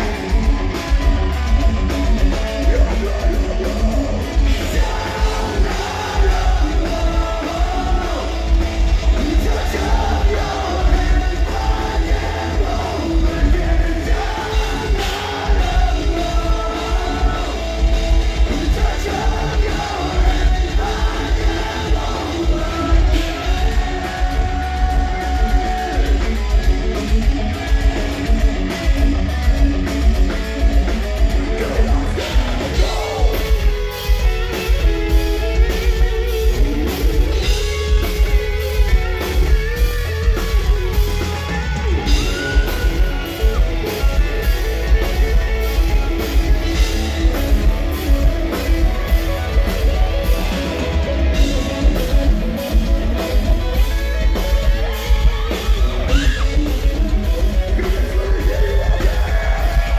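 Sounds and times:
person singing: 0.0 - 28.4, 31.4 - 34.8, 54.4 - 59.9
bass guitar: 0.0 - 59.9
distorted electric guitars: 0.0 - 59.9
pounding drum kit: 0.0 - 59.9.

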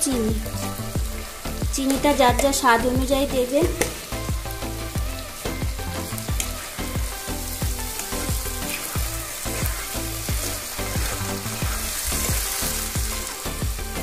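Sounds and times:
background music with steady beat: 0.0 - 14.0
food sizzling in oil: 0.0 - 14.0
spatula stirring in pan: 4.8 - 13.9.

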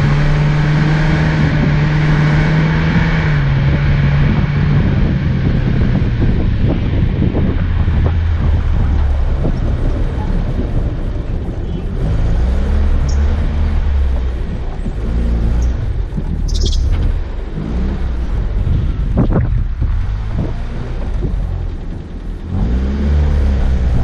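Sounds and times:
vehicle engine rumbling: 0.0 - 24.0
vehicle knocking on rough ground: 18.6 - 22.4.

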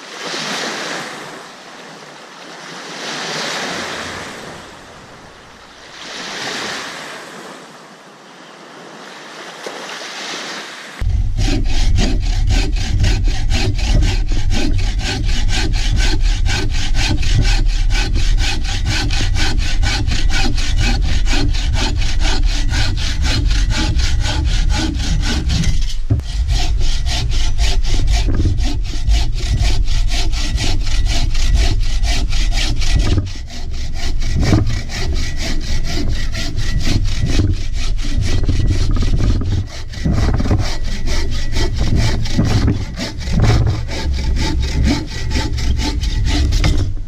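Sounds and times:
lake waves washing onto shore: 0.0 - 11.0
bow saw cutting a log: 11.0 - 47.0.

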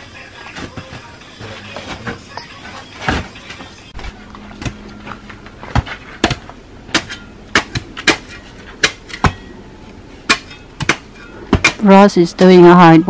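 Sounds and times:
steel bars striking stony soil: 5.7 - 9.6, 10.2 - 12.0.

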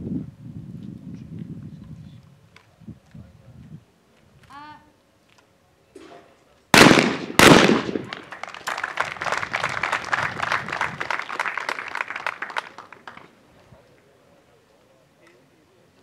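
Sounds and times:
shotgun shots: 6.8 - 8.3
spectators applauding: 8.0 - 13.4.

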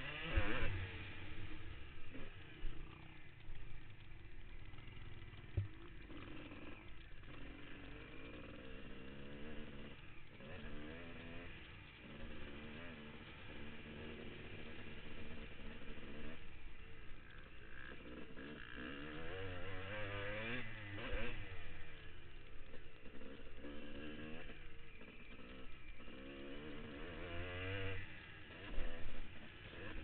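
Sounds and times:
motocross bike engine revving: 0.0 - 30.0.

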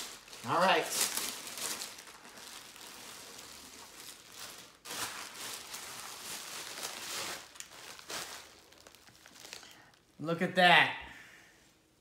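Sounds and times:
plastic wrap crinkling: 0.0 - 10.2.

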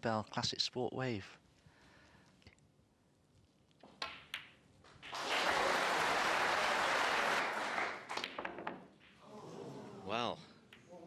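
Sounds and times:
snooker balls clicking: 3.7 - 5.3, 8.1 - 9.2
audience applause: 5.1 - 8.2.

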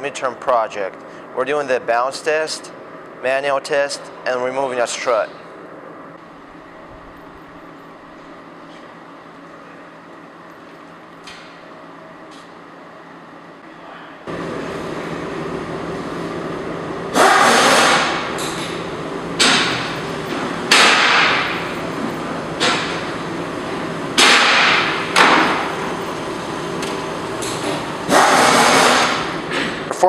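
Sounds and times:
steady low hum: 0.0 - 30.0
loud metallic bangs: 19.3 - 21.8, 24.1 - 25.9.

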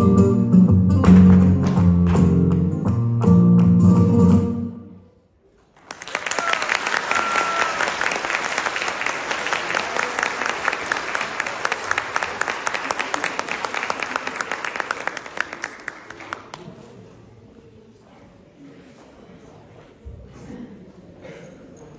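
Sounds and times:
audience applauding: 5.8 - 16.6.

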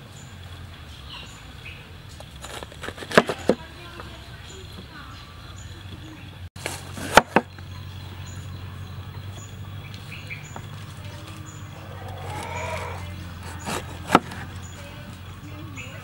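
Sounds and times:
cleaver chopping on wooden board: 7.0 - 7.5, 13.4 - 14.5.

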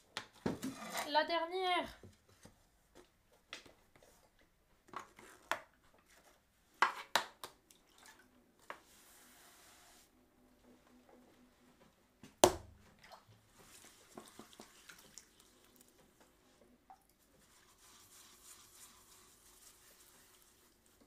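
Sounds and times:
small wet clicks: 14.2 - 16.1.

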